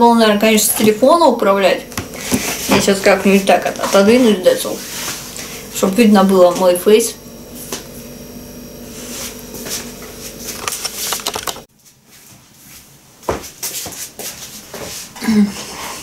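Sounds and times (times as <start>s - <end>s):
faint steady hum: 0.0s - 11.7s
objects clicking on a table: 10.5s - 11.7s.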